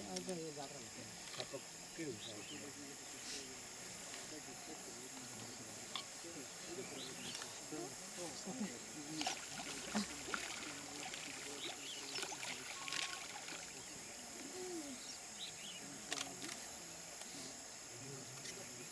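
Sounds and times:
high-pitched insect drone: 0:00.0 - 0:18.9
river water lapping and splashing: 0:03.0 - 0:14.6.

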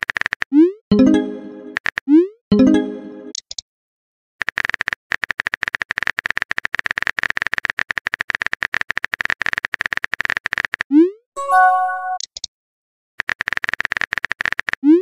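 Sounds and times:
brief chime: 0:11.4 - 0:12.2.

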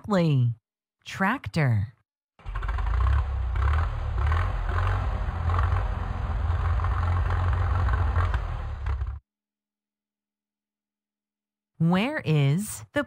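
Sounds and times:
tractor engine running: 0:02.4 - 0:09.2.

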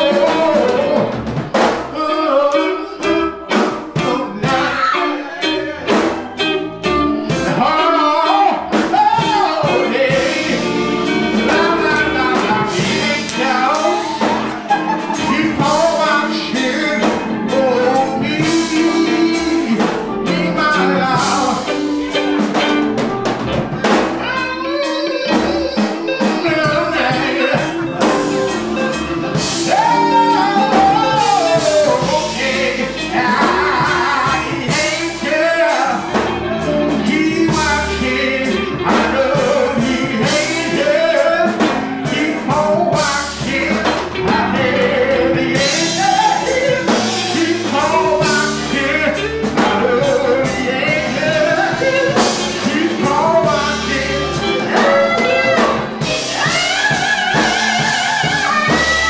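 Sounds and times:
drum hits: 0:00.0 - 0:02.0, 0:25.4 - 0:59.0
live band playing: 0:00.0 - 0:59.0
man singing gospel song: 0:00.0 - 0:59.0.

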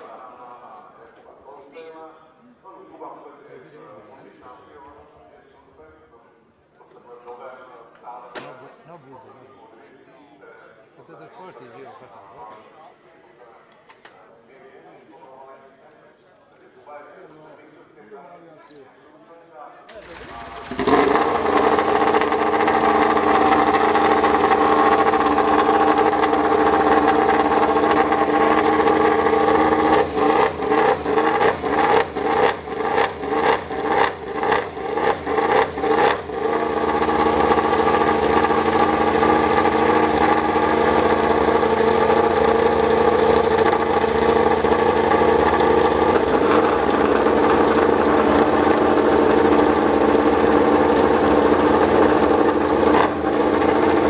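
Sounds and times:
motorcycle engine idling and revving: 0:20.0 - 0:54.0.

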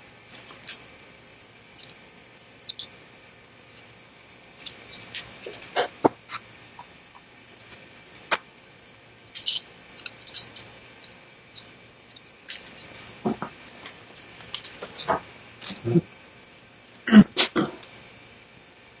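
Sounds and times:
small clicks and taps of parts: 0:09.4 - 0:15.1.

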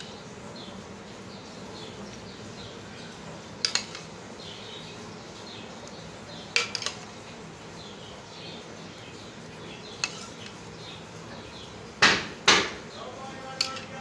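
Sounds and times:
steel spoon clinking: 0:06.5 - 0:07.0, 0:10.0 - 0:10.5, 0:13.6 - 0:14.0.

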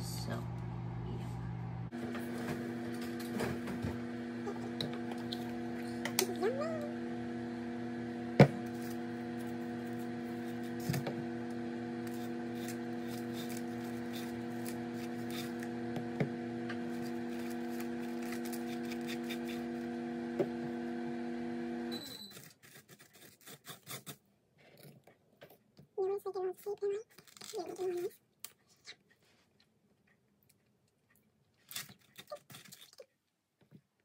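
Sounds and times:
microwave oven humming: 0:00.0 - 0:22.4
microwave beep: 0:21.8 - 0:22.4.

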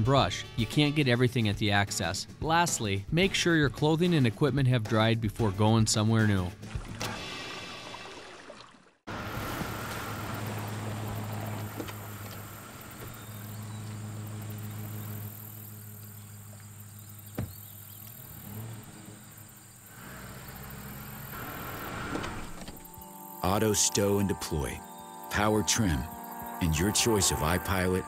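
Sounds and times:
motor idling hum: 0:09.2 - 0:28.0.

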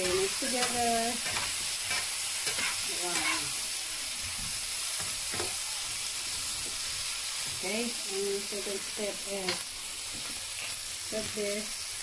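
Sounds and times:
wooden spoon scraping a pan: 0:00.0 - 0:03.5
food sizzling in oil in a pan: 0:00.0 - 0:12.0.

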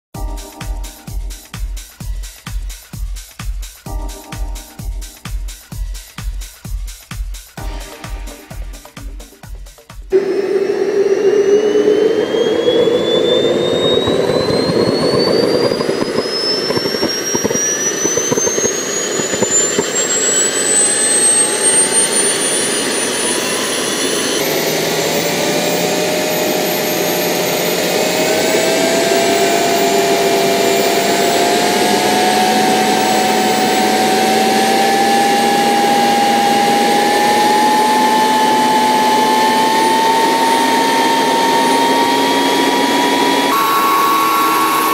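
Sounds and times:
model jet turbine whine: 0:10.1 - 0:44.9.

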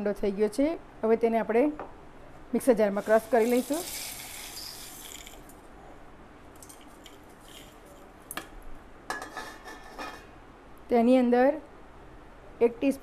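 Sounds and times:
spices rattling into steel jar: 0:03.0 - 0:05.6, 0:06.6 - 0:08.0.

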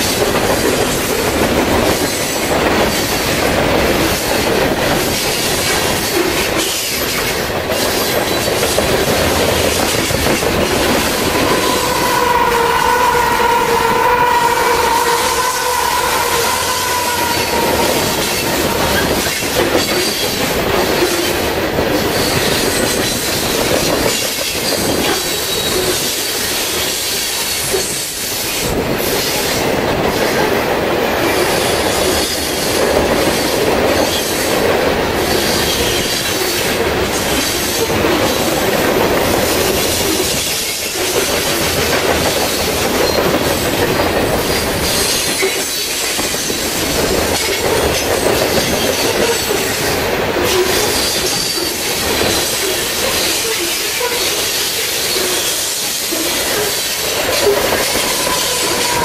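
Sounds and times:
freight train wheels rumbling: 0:00.0 - 0:59.0
high wheel squeal: 0:09.5 - 0:20.6, 0:47.3 - 0:59.0.

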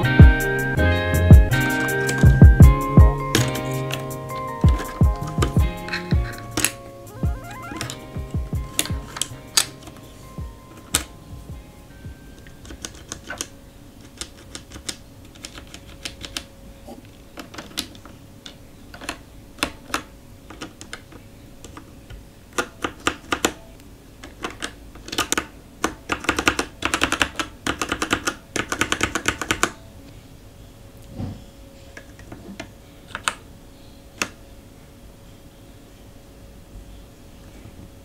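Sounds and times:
mechanical keyboard typing: 0:03.3 - 0:06.8, 0:07.4 - 0:10.1, 0:12.4 - 0:16.5, 0:17.4 - 0:21.8, 0:22.6 - 0:23.6, 0:24.2 - 0:29.8.

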